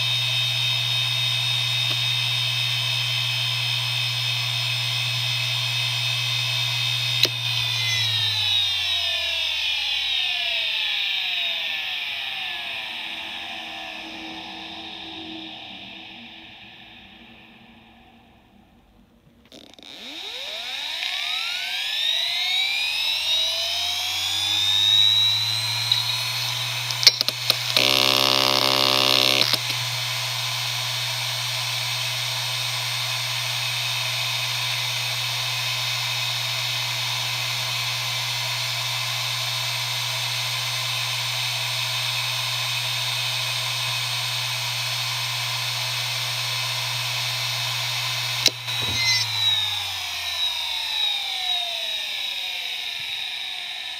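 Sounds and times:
hard drive whine and hum: 0:00.0 - 0:53.9
buzz of head seeks: 0:48.4 - 0:49.7.

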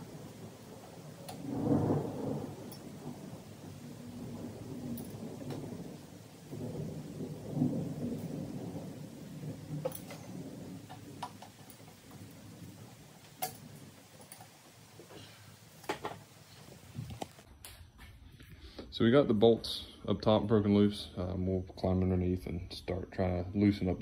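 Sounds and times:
wrench and handling rumble: 0:09.6 - 0:15.1.

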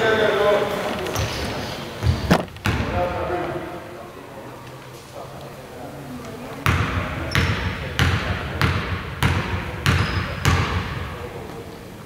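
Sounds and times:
basketball bouncing on wooden floor: 0:06.7 - 0:11.0.

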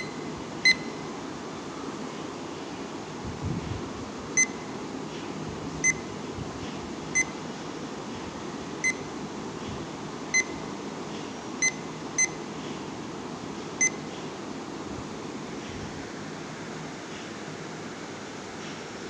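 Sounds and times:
digital timer beeps: 0:00.0 - 0:01.0, 0:04.4 - 0:04.6, 0:05.8 - 0:06.0, 0:10.4 - 0:10.6, 0:11.6 - 0:12.4, 0:13.8 - 0:14.0.

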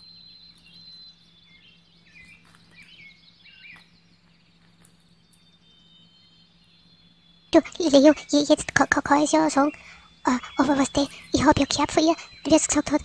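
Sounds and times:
guinea pigs nibbling grass: 0:02.1 - 0:03.1, 0:03.7 - 0:05.8.

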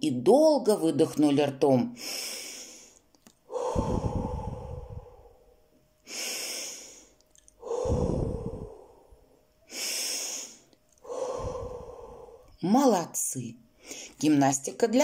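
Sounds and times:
woman breathing out: 0:02.0 - 0:12.6.

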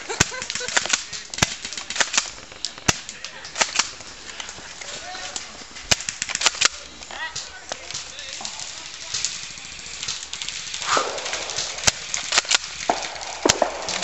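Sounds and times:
faint voices: 0:00.0 - 0:14.0
airsoft gun shots: 0:00.1 - 0:03.9, 0:10.8 - 0:14.0.

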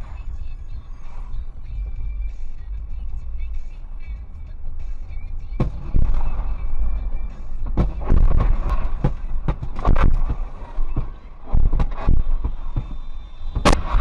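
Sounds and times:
car road and engine rumble: 0:00.0 - 0:14.0
explosion bangs and cracks: 0:05.6 - 0:14.0.

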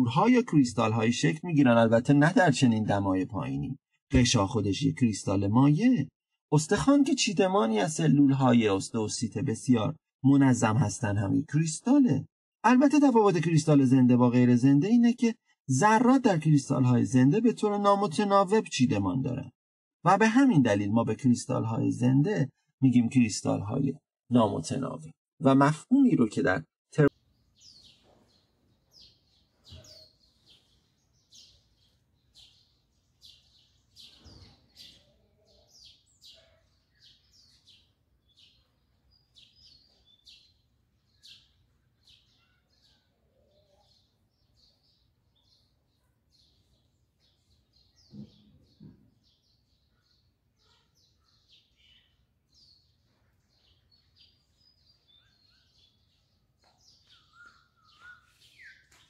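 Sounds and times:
small birds chirping: 0:20.4 - 0:59.0.

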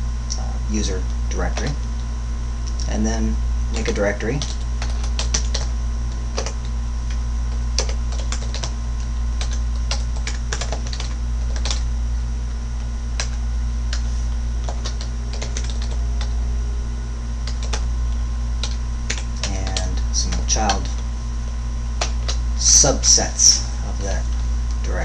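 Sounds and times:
steady low hum: 0:00.0 - 0:25.0
keyboard keys clicking: 0:03.8 - 0:05.7, 0:07.8 - 0:08.7, 0:09.4 - 0:11.8, 0:14.6 - 0:16.3, 0:17.5 - 0:17.8.

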